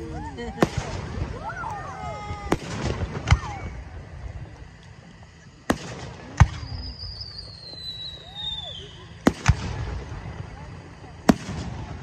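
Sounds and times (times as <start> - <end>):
firework high whistle: 0.0 - 4.2, 5.7 - 10.7.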